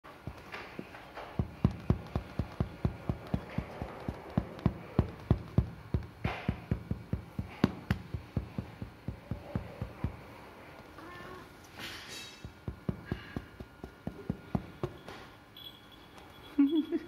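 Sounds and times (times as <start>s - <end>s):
inflatable stick thumping: 0.2s - 10.3s.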